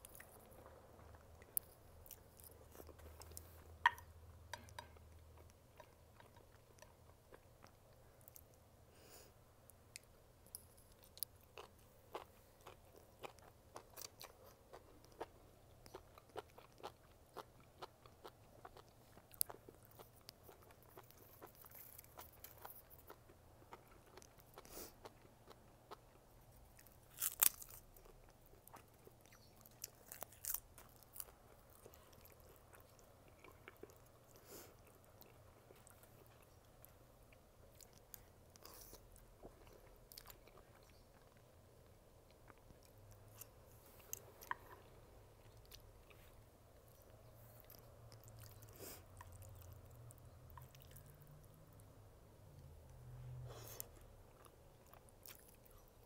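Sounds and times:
person chewing: 0.0s - 8.6s, 10.0s - 41.5s, 42.3s - 51.3s, 53.5s - 56.0s.

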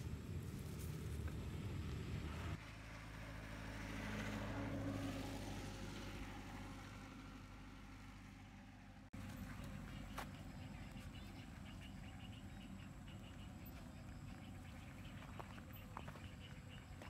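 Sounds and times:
vehicle passing: 0.0s - 17.0s.

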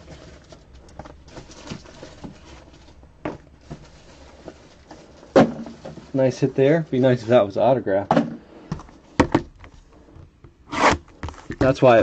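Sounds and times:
plastic sleeve rustling: 0.0s - 7.5s.

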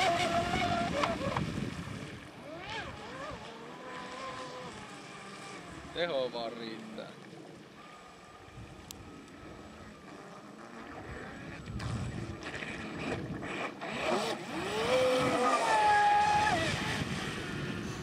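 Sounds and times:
wind on microphone: 0.0s - 4.9s, 10.9s - 18.0s
electric boat motor whine: 0.0s - 18.0s.

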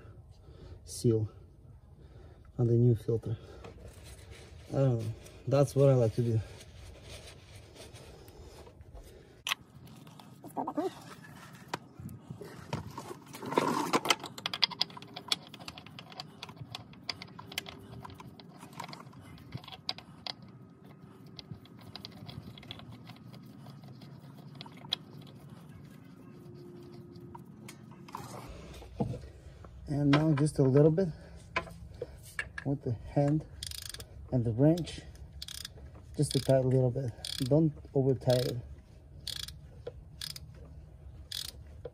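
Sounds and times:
rustling: 3.6s - 14.2s
oil filter clicks and rubbing: 12.7s - 30.8s, 38.2s - 41.9s.

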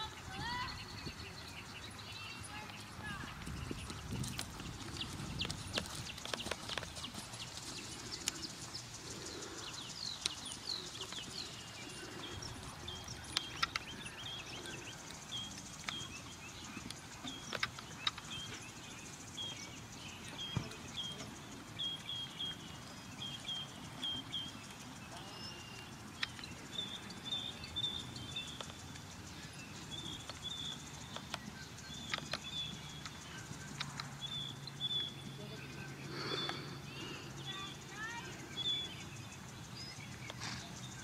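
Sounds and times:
bird chirping: 0.0s - 41.0s
horse hoofbeats on sand: 2.7s - 8.2s.

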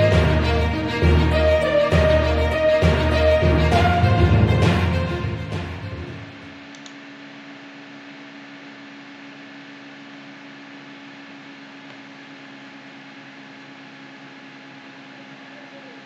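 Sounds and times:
theme music: 0.0s - 6.5s.

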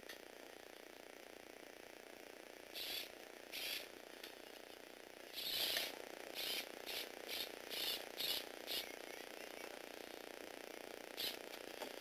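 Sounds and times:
small electric motor whirring: 2.7s - 4.7s, 5.3s - 12.0s.

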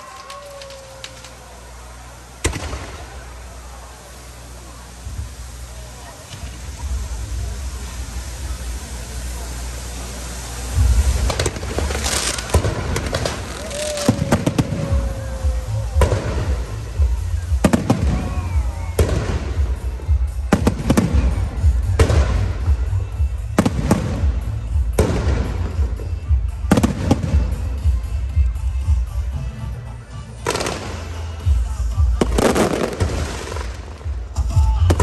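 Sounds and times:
fireworks loud bangs: 0.0s - 28.1s, 30.4s - 35.0s
low rumble: 4.5s - 29.1s.

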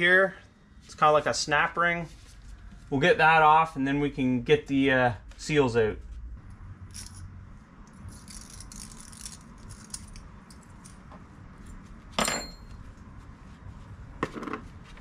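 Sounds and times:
sharp ringing metal clink: 12.2s - 12.7s.

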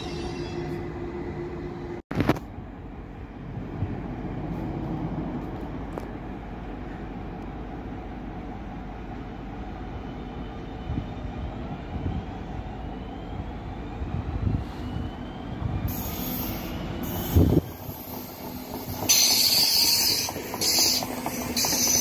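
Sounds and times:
train wheels rumbling on rail: 0.0s - 22.0s
hiss: 15.9s - 22.0s.

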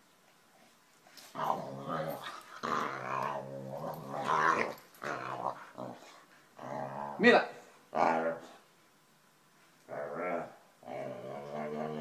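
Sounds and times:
dog growling: 1.3s - 7.3s, 7.9s - 8.6s, 9.9s - 12.0s.

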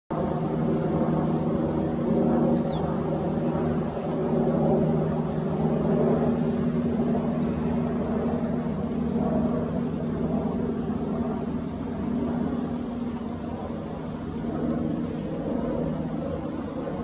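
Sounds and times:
low mechanical drone: 0.1s - 17.0s.

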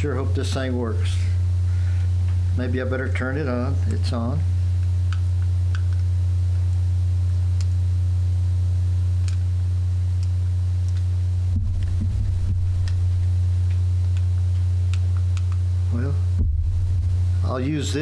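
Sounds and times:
electrical mains hum: 0.0s - 18.0s
low handling bump: 11.5s - 13.6s, 16.3s - 17.4s.

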